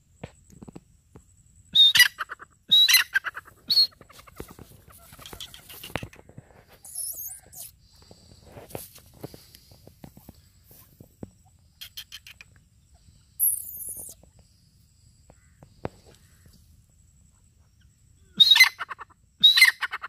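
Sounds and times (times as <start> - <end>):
high-pitched squeaky bird calls: 1.8 - 6.2, 6.8 - 7.8, 11.8 - 12.6, 13.4 - 14.2, 18.3 - 20.0
rustling in dry leaves: 3.4 - 6.0, 8.4 - 11.0.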